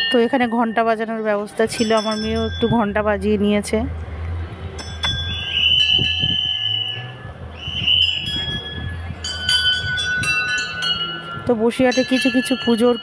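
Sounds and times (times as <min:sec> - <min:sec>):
shrill high steady tone: 0:00.0 - 0:04.0, 0:04.6 - 0:13.0
temple bells ringing: 0:00.0 - 0:04.1, 0:04.7 - 0:13.0
steady low hum: 0:01.6 - 0:11.6.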